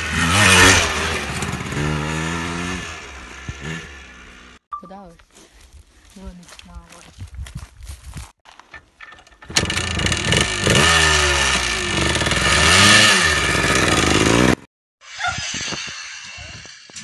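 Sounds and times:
motorcycle engine revving: 0:00.0 - 0:04.6, 0:09.4 - 0:14.7.

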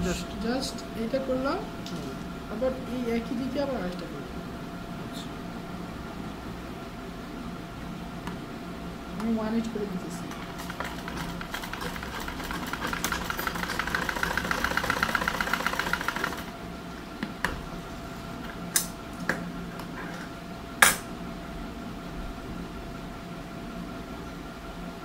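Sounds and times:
steady hum: 0:00.0 - 0:25.0
sewing machine stitching: 0:10.3 - 0:16.5.

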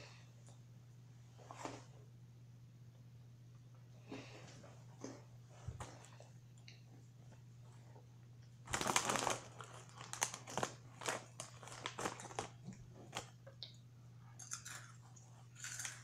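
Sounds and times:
snack bag crinkling: 0:08.7 - 0:13.4, 0:14.4 - 0:16.0.

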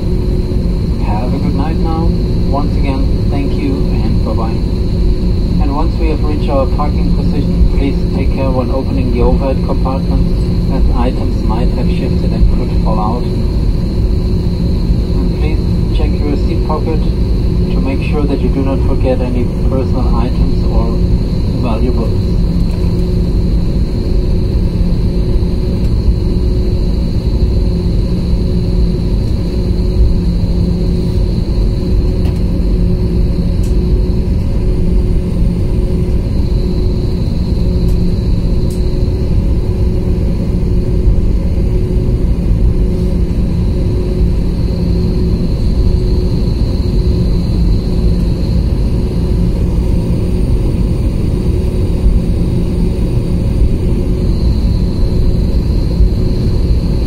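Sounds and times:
aircraft cabin rumble: 0:00.0 - 0:57.0
faint high engine whine: 0:00.0 - 0:57.0.

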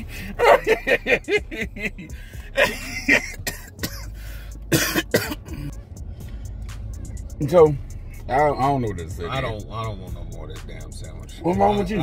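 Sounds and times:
man coughing: 0:00.0 - 0:05.8
throat clearing: 0:04.7 - 0:05.7.

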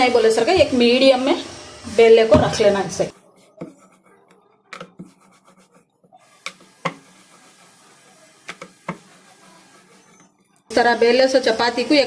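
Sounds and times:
rolling pin rubbing on dough: 0:03.1 - 0:10.7.

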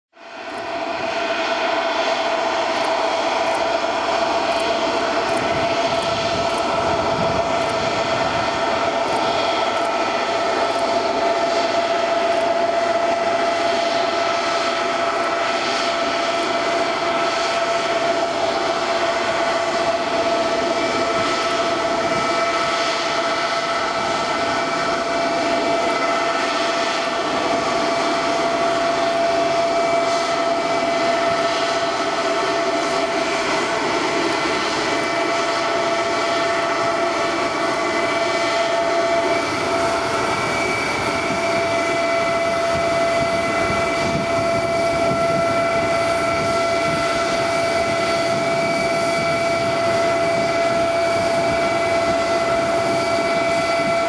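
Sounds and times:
jet engines at taxi power: 0:00.1 - 0:54.0
whining tone: 0:00.4 - 0:54.0.

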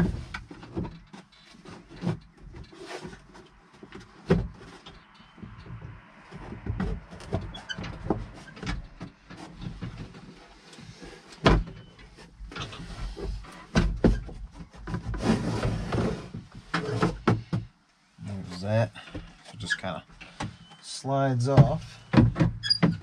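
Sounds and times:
knocks and rattles of handled controls: 0:00.0 - 0:15.2, 0:16.2 - 0:23.0.

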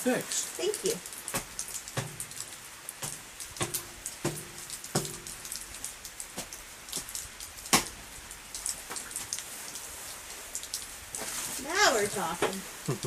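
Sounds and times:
steady hiss: 0:00.0 - 0:13.0
sharp loud knock: 0:03.0 - 0:05.4.

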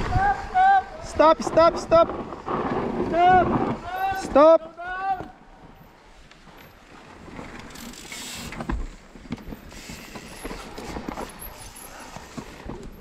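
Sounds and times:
bike tyres rolling over dirt: 0:00.0 - 0:13.0
bike chain rattling: 0:06.6 - 0:08.6, 0:09.6 - 0:13.0.

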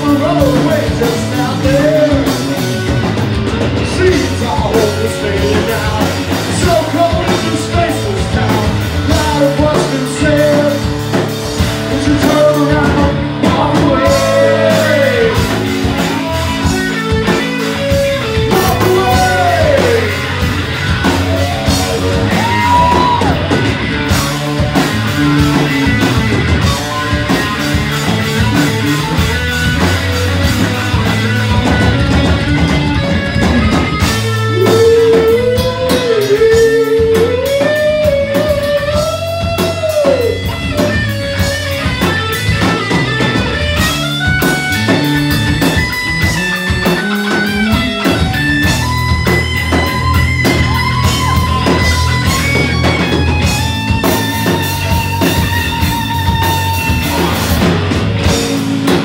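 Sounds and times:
person singing: 0:00.0 - 0:02.6, 0:03.9 - 0:11.0, 0:11.9 - 0:16.8, 0:18.4 - 0:20.4, 0:34.5 - 0:40.9
bass guitar: 0:00.0 - 0:59.0
drum kit: 0:00.0 - 0:59.0
electric guitar: 0:00.0 - 0:59.0.

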